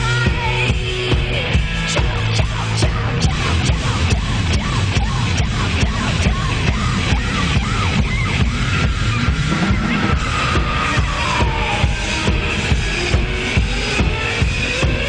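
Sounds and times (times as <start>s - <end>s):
electronic dance music: 2.0s - 15.0s
synth line gliding downward: 6.3s - 15.0s.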